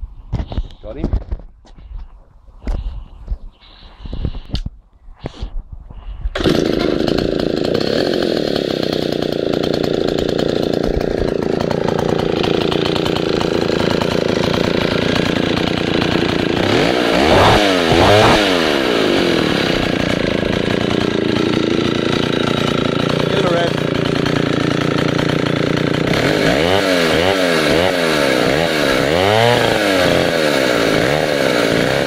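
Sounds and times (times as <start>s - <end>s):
chainsaw running and revving: 6.4s - 32.0s.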